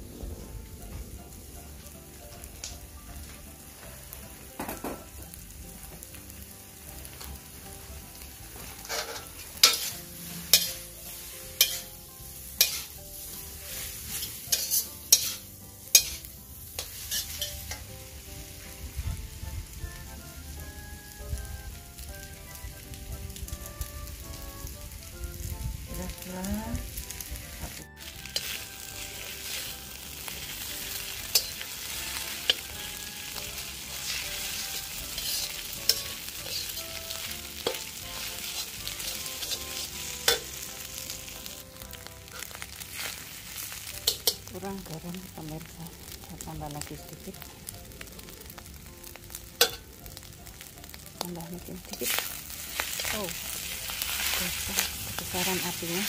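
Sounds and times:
noodles sizzling in a wok: 0.0s - 56.0s
metal spatula scraping wok: 8.2s - 18.1s, 27.0s - 41.5s, 42.2s - 44.5s, 49.6s - 49.8s, 51.9s - 56.0s
spatula clanking against wok: 8.7s - 10.9s, 11.6s - 12.0s, 12.6s - 13.0s, 14.1s - 17.9s, 30.6s - 32.7s, 33.4s - 40.6s, 44.0s - 44.5s, 49.6s - 49.9s.

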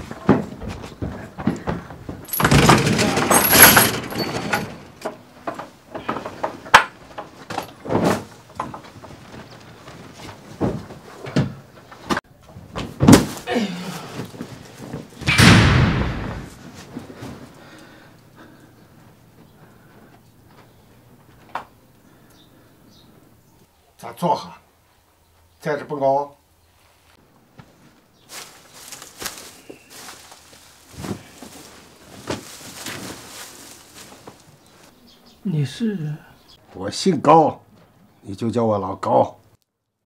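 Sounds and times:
metal clatter: 2.0s - 9.0s
iron cell gate slamming: 2.3s - 5.1s, 15.2s - 16.6s
door slamming: 2.3s - 5.2s, 15.2s - 16.7s
footsteps: 14.2s - 17.6s, 27.0s - 35.0s.

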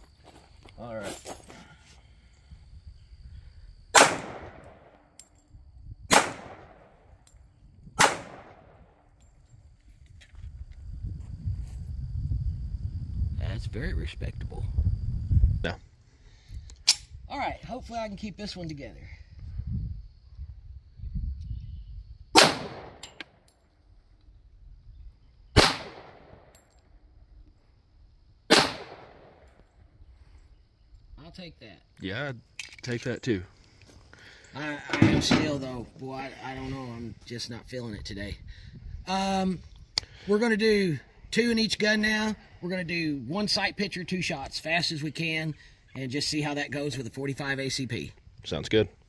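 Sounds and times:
pistol shots echoing: 4.0s - 5.0s, 6.1s - 7.0s, 8.0s - 8.9s, 22.4s - 23.2s, 25.6s - 26.5s, 28.5s - 29.5s.

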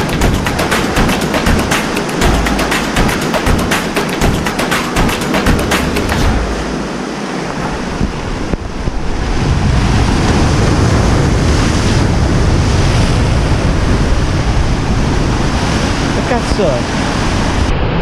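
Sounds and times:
surf breaking on rocks: 0.0s - 18.0s
wind buffeting microphone: 5.5s - 18.0s.

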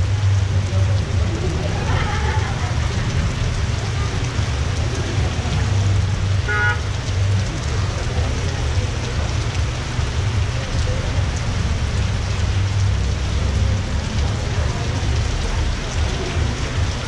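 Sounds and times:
cars driving on wet road: 0.0s - 17.0s
heavy rain on street and awning: 0.0s - 17.0s
car horn toot: 6.4s - 6.8s.

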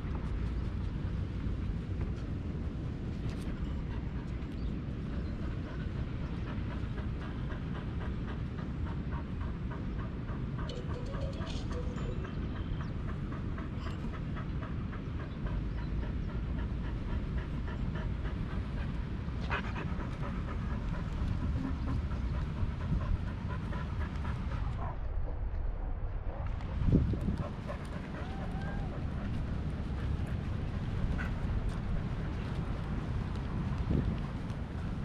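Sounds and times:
dog panting: 0.0s - 25.5s, 26.3s - 35.0s
low rumble: 12.6s - 35.0s.

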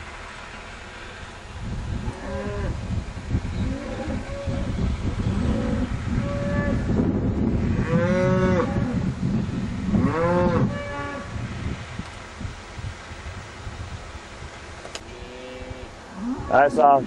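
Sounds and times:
steady low rumble: 0.0s - 17.0s
cattle mooing: 2.1s - 2.8s, 3.6s - 6.9s, 7.7s - 9.0s, 9.9s - 11.3s, 15.1s - 17.0s.

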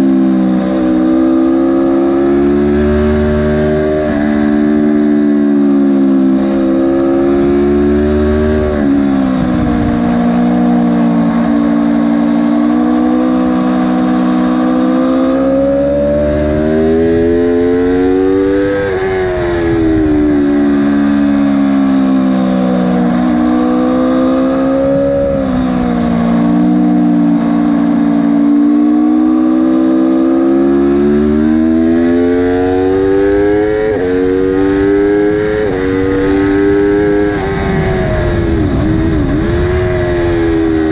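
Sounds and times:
motorcycle engine accelerating: 0.0s - 40.9s
wind rushing: 35.6s - 40.9s.

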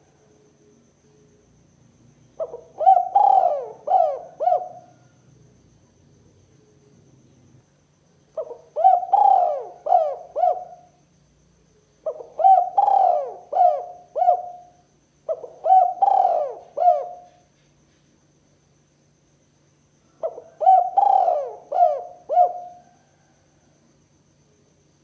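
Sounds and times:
dove cooing: 2.4s - 5.1s, 8.4s - 10.9s, 12.0s - 17.4s, 20.2s - 23.3s.

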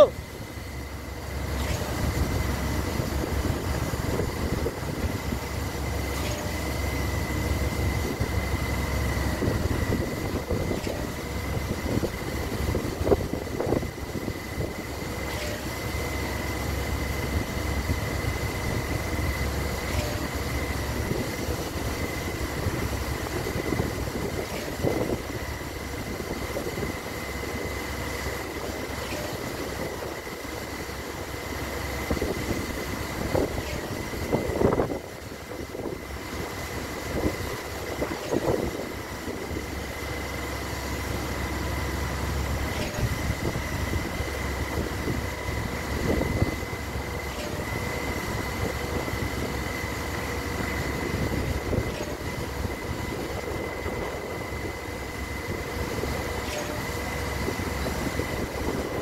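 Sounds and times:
concrete pump rumbling: 0.0s - 59.0s
thin steady whine: 0.0s - 59.0s.

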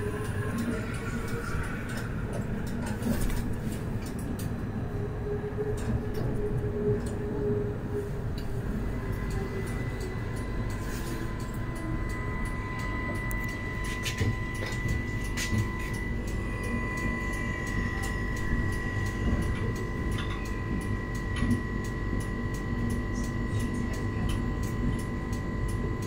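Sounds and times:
motor hum: 0.0s - 23.7s
tram wheel and rail rumble: 0.0s - 26.0s
high whine on a curve: 4.0s - 26.0s.

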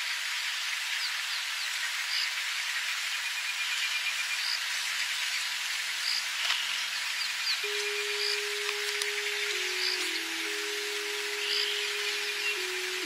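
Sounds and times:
insect hiss: 0.0s - 13.0s
pulsing insect trill: 7.6s - 13.0s.

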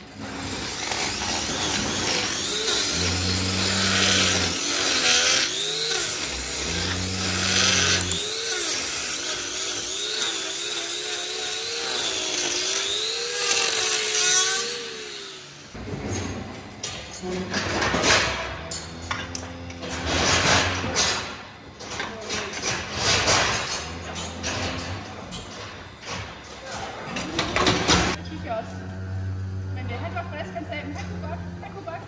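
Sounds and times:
power grinder cutting hoof: 0.0s - 15.8s, 17.0s - 21.4s.

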